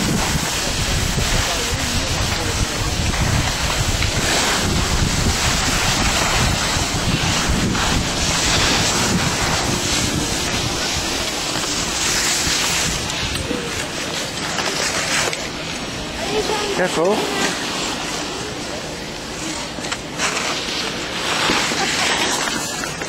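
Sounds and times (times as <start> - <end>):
wind buffeting microphone: 0.0 - 14.0
skis sliding over packed snow: 0.0 - 23.0.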